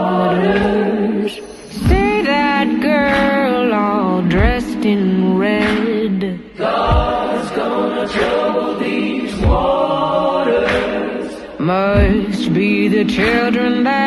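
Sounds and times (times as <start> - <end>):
deep slow beat: 0.0 - 14.0
layered voices chanting: 0.0 - 14.0.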